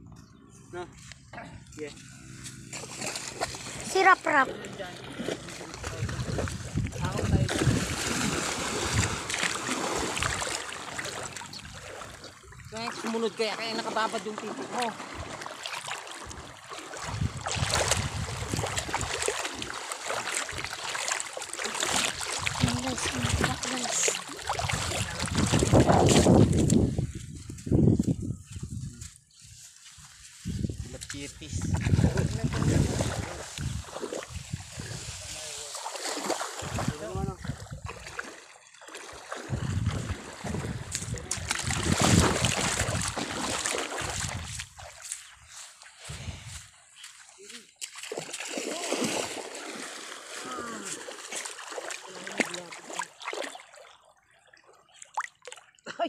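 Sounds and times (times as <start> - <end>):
water sloshing and splashing: 2.5 - 28.6, 29.6 - 56.0
wind rumble on microphone: 5.7 - 9.3, 17.0 - 19.2, 24.6 - 29.2, 30.0 - 35.5, 36.6 - 38.1, 39.5 - 44.9, 46.1 - 46.7.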